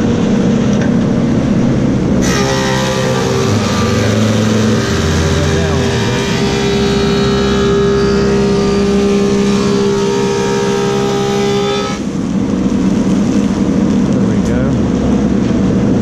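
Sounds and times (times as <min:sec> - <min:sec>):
planer machine whine: 0:02.2 - 0:12.1.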